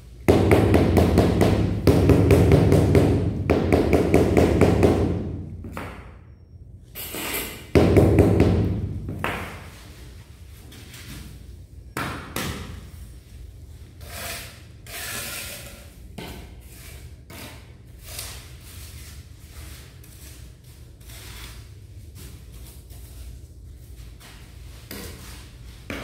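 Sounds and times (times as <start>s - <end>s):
mortar scraping on floor: 13.8s - 23.4s.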